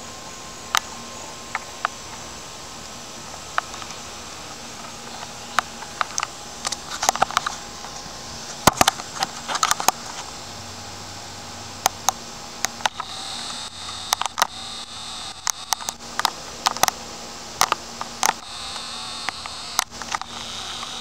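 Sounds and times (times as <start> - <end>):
steady hiss: 0.0 - 21.0
camcorder handling clicks and taps: 12.6 - 17.0, 17.6 - 21.0.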